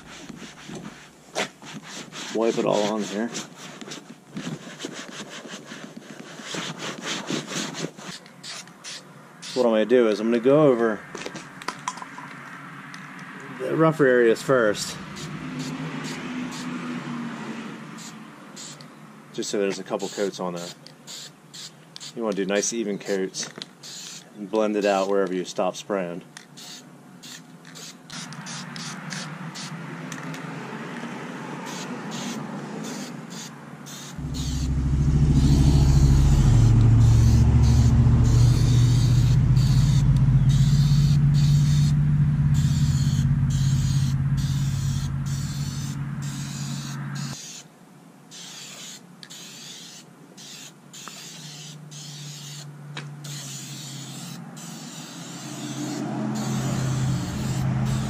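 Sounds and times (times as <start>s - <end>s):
vehicle engine rumble: 11.0s - 16.6s, 34.2s - 47.4s, 51.8s - 54.7s, 55.4s - 58.0s
aerosol can spraying: 15.1s - 16.6s, 18.0s - 18.9s, 20.1s - 22.2s, 23.8s - 24.2s, 26.6s - 29.7s, 31.7s - 34.7s, 35.4s - 47.6s, 48.3s - 58.0s.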